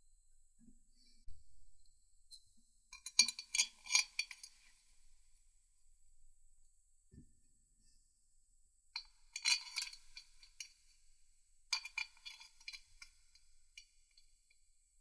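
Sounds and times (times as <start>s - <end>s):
metal bolts and washers clinking: 9.0s - 10.6s, 11.7s - 13.4s.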